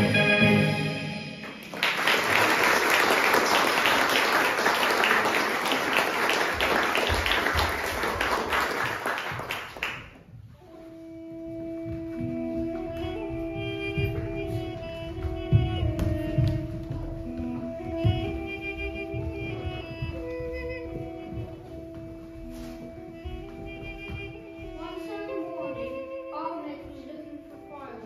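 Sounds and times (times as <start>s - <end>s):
recorded music track: 0.0s - 2.2s, 10.0s - 28.0s
audience applauding: 1.4s - 10.2s
tune of long held notes: 10.6s - 27.6s.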